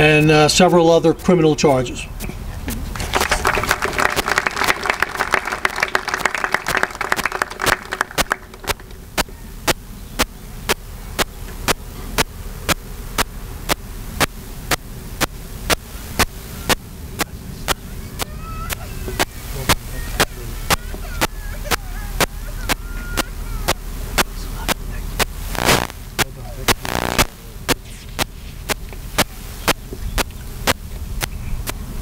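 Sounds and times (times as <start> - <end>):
audience applauding: 2.9 - 9.0
sharp clicks: 7.6 - 17.3, 25.2 - 31.8.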